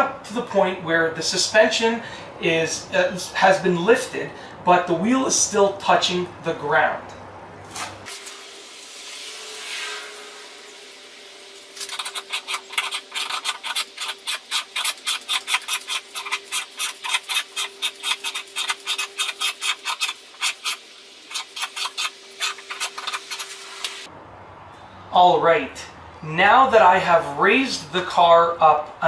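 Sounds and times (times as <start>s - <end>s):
rustling: 11.7s - 24.1s
scissor jack crank clicking: 11.8s - 23.5s.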